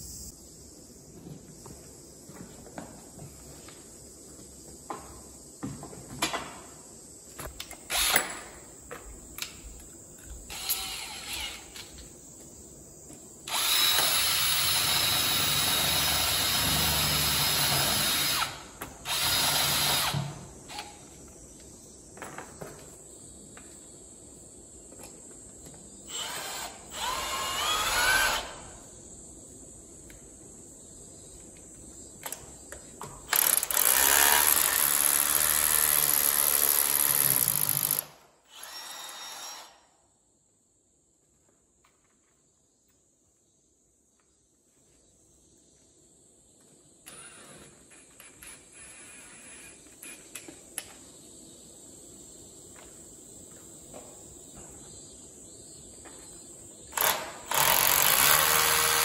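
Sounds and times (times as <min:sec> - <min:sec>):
electric drill running: 0:07.9 - 0:08.4, 0:10.5 - 0:11.8, 0:13.5 - 0:20.9, 0:26.1 - 0:28.6, 0:33.3 - 0:39.8, 0:56.9 - 0:59.0.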